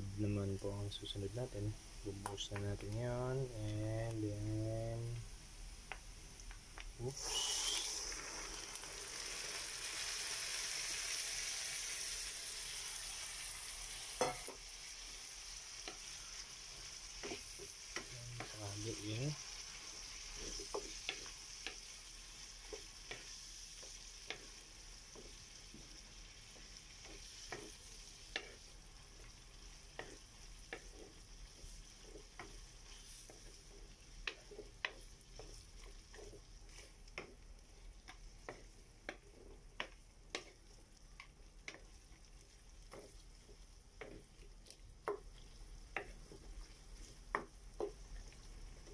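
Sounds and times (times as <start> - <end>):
hot oil sizzling in frying pan: 0.0 - 48.9
wooden spoon scraping pan: 17.1 - 19.3, 29.9 - 37.4.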